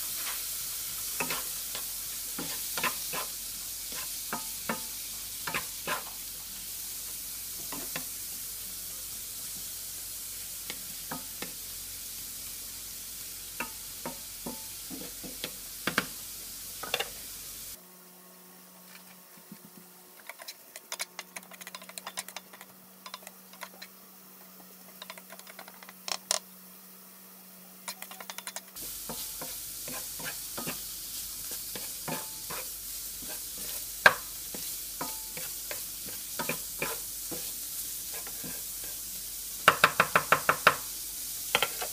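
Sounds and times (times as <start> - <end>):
shrimp sizzling in oil: 0.0 - 17.8, 28.8 - 41.9
spatula knocking against pan: 39.6 - 40.8.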